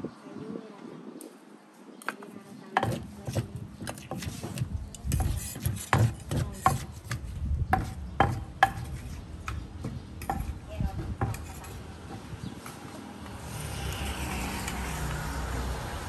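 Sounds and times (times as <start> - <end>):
utensils scraping wood: 2.7 - 7.2, 11.2 - 11.9.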